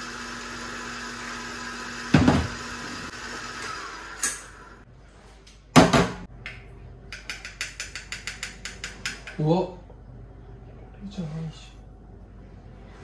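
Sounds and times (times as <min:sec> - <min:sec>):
metal kitchenware knocking: 0:07.1 - 0:09.4.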